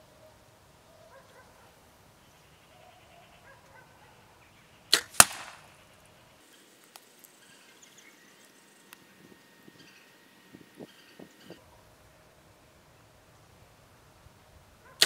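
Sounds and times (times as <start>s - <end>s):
bow string snaps: 4.9s - 5.7s.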